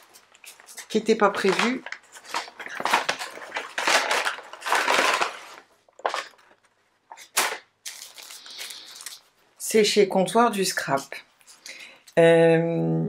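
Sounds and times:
paper and plastic crinkling: 0.0s - 9.5s.

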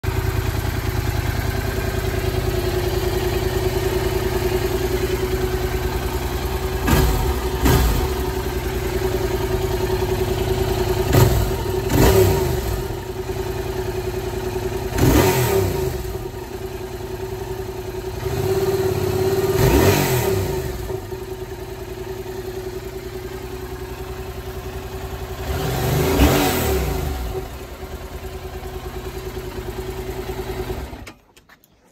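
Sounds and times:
motorcycle engine idling: 0.0s - 31.9s.

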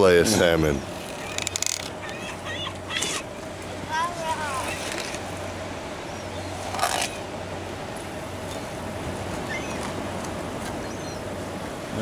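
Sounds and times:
low even hum: 0.0s - 12.0s
outdoor background hiss: 0.0s - 12.0s
faint bird chirp: 9.4s - 9.9s, 10.8s - 11.3s.

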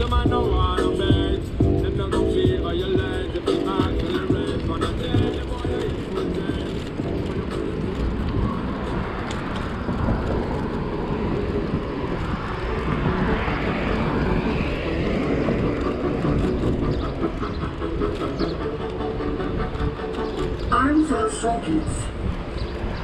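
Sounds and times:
road and traffic noise: 0.0s - 23.0s
wind rumble on microphone: 0.0s - 23.0s.

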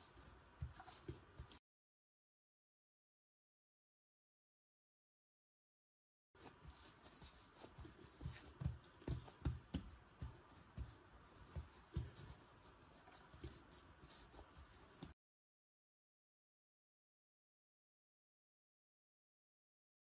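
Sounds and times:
hands patting dough: 0.0s - 1.6s, 6.4s - 15.2s
dull thumps with light rubbing: 6.4s - 15.2s.

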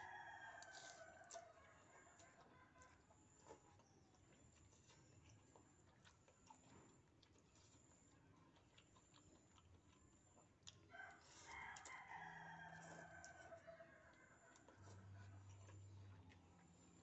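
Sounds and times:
rooster crowing: 0.0s - 2.3s, 10.9s - 15.2s
fork clicking eating noodles: 0.4s - 3.0s.

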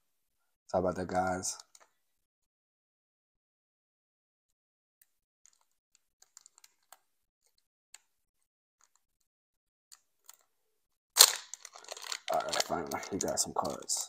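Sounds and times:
foil wrapper crinkling: 11.2s - 14.0s.

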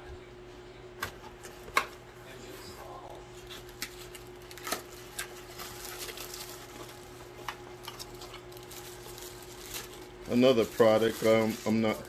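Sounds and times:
packaging rustling: 3.4s - 12.0s.

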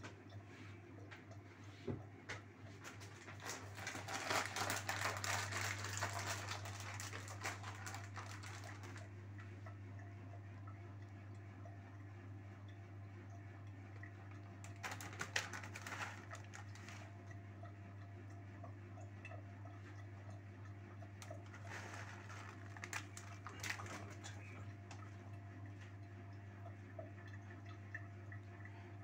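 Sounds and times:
grated cheese rustling from plastic bag: 3.4s - 9.0s, 14.8s - 17.0s, 21.5s - 24.2s.

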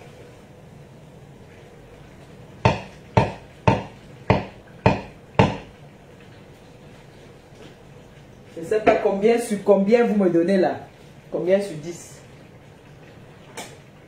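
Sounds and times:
sharp knocks: 2.6s - 5.7s.

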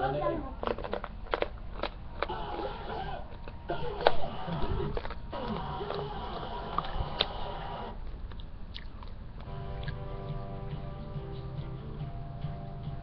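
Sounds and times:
television sound: 0.0s - 13.0s
chewing hard candy: 0.5s - 10.4s
candy cracking: 0.6s - 9.9s
music: 9.5s - 13.0s.

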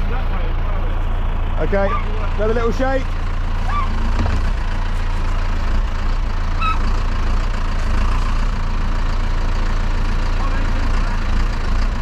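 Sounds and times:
tractor diesel engine running: 0.0s - 12.0s
short high squeak: 3.7s - 4.0s, 6.6s - 6.9s.

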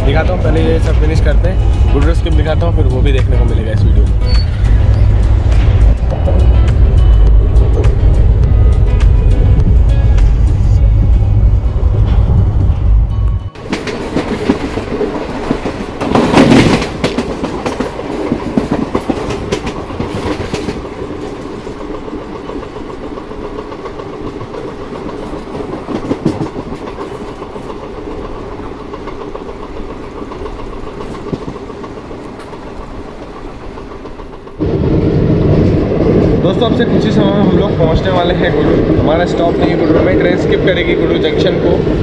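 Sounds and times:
train rumble on rails: 0.0s - 42.0s
train rush: 0.0s - 42.0s
wheels clickety-clack over joints: 13.6s - 34.6s.

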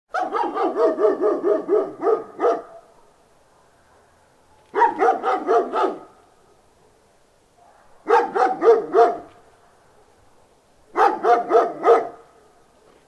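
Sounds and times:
big dog barking: 0.1s - 6.9s, 7.6s - 9.4s, 10.9s - 12.6s.

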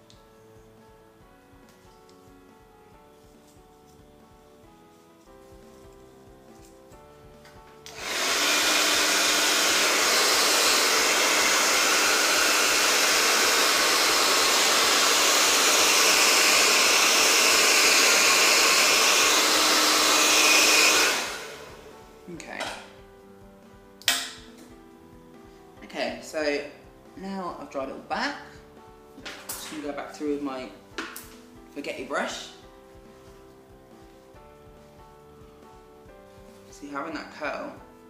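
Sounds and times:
hair dryer blowing air: 7.8s - 22.1s.

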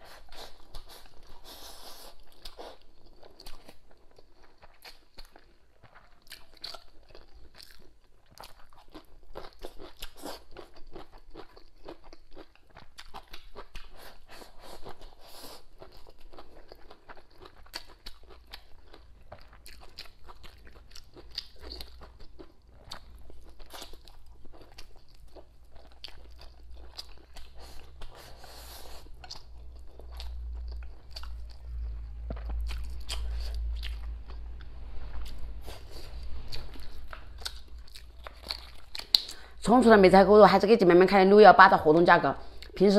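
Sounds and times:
close chewing and biting: 0.0s - 39.6s
low rumble: 29.1s - 40.3s.

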